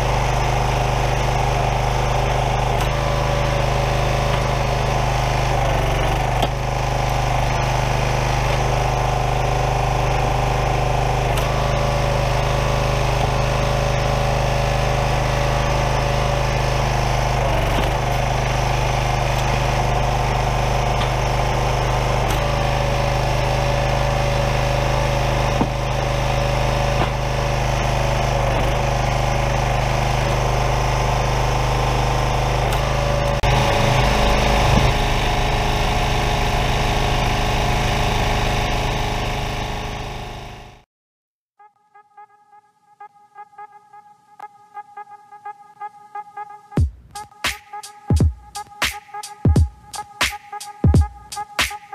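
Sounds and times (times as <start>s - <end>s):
small gas engine running: 0.0s - 40.9s.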